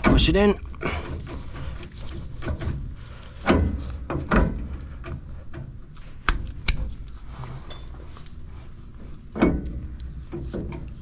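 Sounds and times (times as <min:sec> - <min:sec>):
heavy metal clunks: 0:00.0 - 0:05.8, 0:09.3 - 0:10.9.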